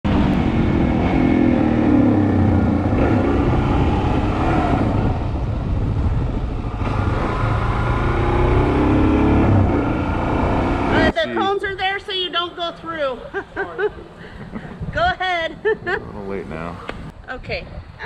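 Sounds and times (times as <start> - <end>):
motorcycle engine running: 0.1 - 11.2.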